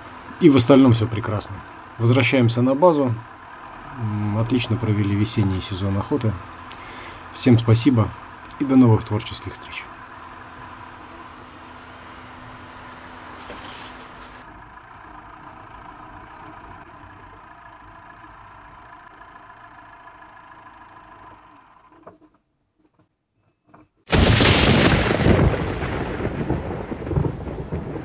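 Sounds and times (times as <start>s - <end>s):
vehicle driving noise: 0.0s - 23.1s
rain rushing: 24.1s - 28.0s
thunder crash: 24.1s - 28.0s.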